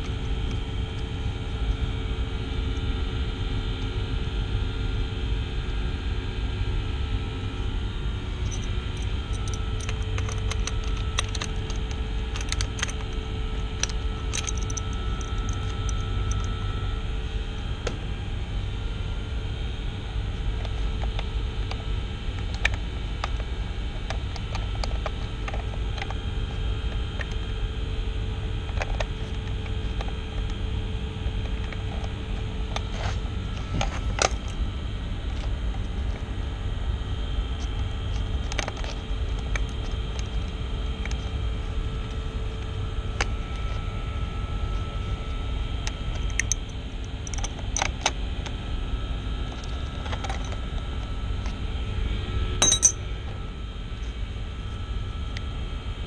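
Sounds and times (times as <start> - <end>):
machinery rumble: 5.9 - 54.3
light clicks and metal rattles: 13.8 - 16.5.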